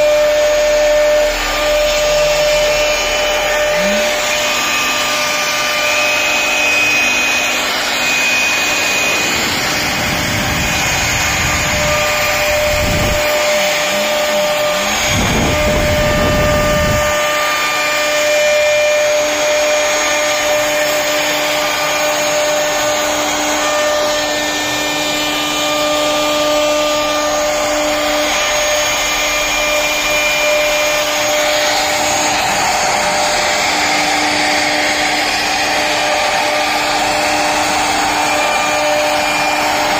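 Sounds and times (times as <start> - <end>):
router spindle whine: 0.0 - 39.9
wood cutting noise: 0.0 - 39.9
wavering low rumble: 9.4 - 17.2.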